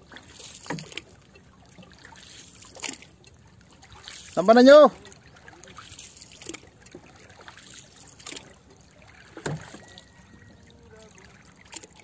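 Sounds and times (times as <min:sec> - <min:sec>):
water lapping and splashing: 0:00.0 - 0:12.0
knocks on boat: 0:09.3 - 0:10.0.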